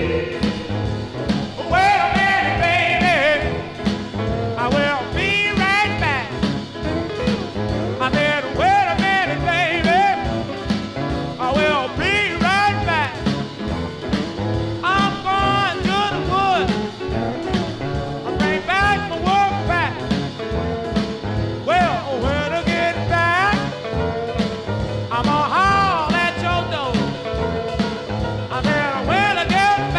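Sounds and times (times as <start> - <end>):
rhythm and blues record: 0.0 - 29.9.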